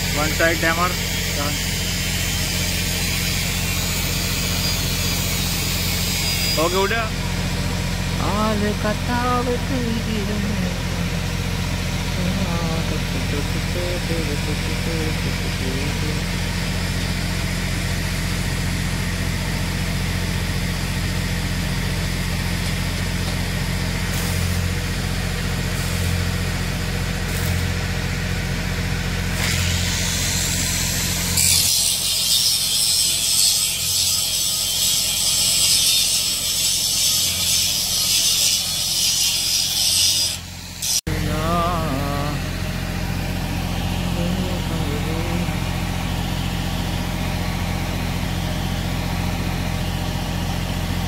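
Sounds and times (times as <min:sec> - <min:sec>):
engine humming: 0:00.0 - 0:31.4, 0:40.4 - 0:51.0
arc welding crackling sizzle: 0:23.1 - 0:27.9, 0:29.3 - 0:41.0.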